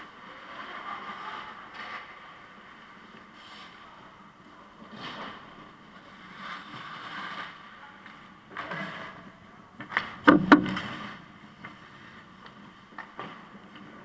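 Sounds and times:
skate blades scraping ice: 4.8s - 8.0s.

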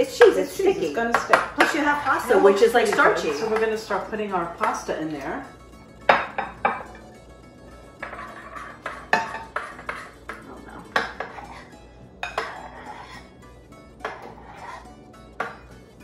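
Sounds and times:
quiet background music: 0.0s - 16.0s
spoon stirring sticky pasta: 0.2s - 5.6s, 6.9s - 16.0s
spoon scraping glass bowl: 7.8s - 15.8s.

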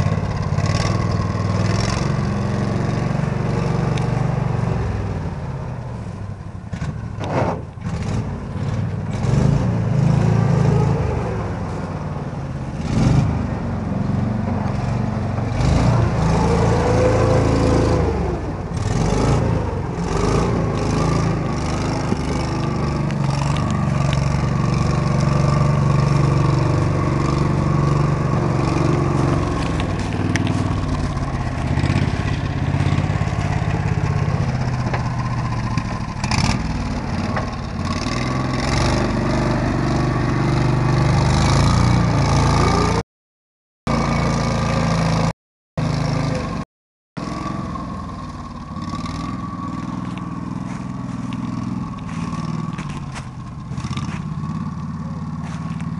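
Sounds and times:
atv engine running: 0.0s - 7.1s, 7.8s - 43.0s, 43.9s - 46.6s, 47.2s - 55.9s
clattering and scraping in undergrowth: 20.1s - 39.2s, 48.1s - 55.9s.

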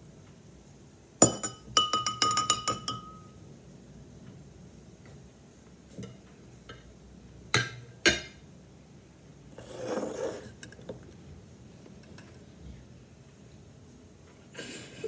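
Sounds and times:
metal scoop knocking on ceramic plate: 1.2s - 3.2s
bowl scraping across wooden table: 9.5s - 10.6s.

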